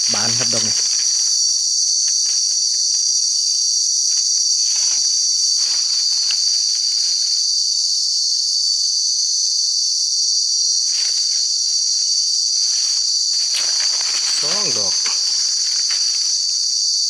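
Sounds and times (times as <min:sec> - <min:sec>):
insects buzzing: 0:00.0 - 0:17.0
soft rustles: 0:04.1 - 0:07.4, 0:12.6 - 0:16.6.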